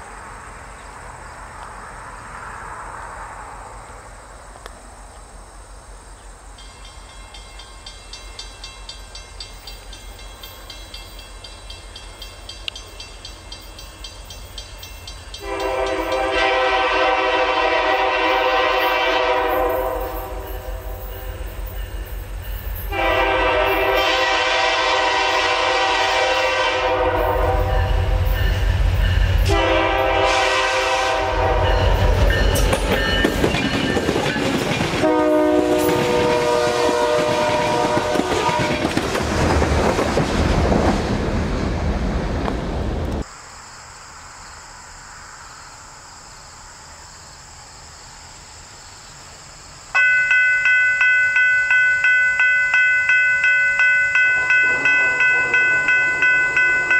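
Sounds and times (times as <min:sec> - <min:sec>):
train rumble and wheel clatter: 0:00.0 - 0:43.3, 0:49.5 - 0:56.9
crossing bell ringing: 0:06.6 - 0:16.4, 0:18.6 - 0:24.2, 0:27.1 - 0:29.6, 0:31.3 - 0:35.2, 0:50.0 - 0:56.9
locomotive horn blasts: 0:15.4 - 0:21.4, 0:22.9 - 0:28.6, 0:29.3 - 0:32.7, 0:35.0 - 0:38.9, 0:53.9 - 0:56.9.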